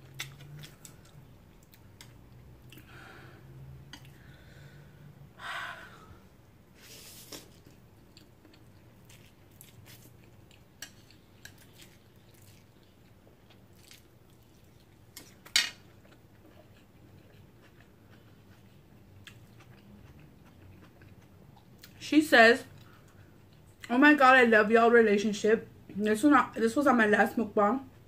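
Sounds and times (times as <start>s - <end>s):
chewing mouth sounds: 16.0s - 22.0s.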